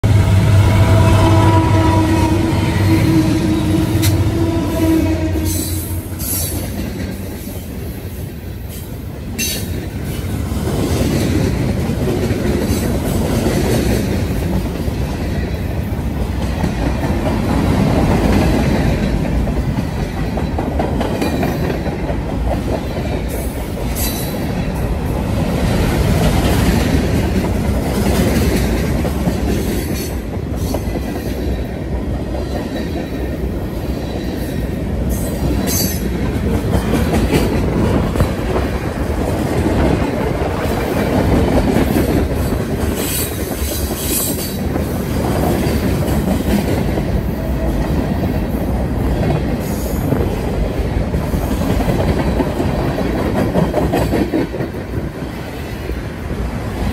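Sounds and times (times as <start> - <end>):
diesel locomotive engines humming: 0.0 - 10.6
train wheels rumbling and clacking: 0.0 - 56.9.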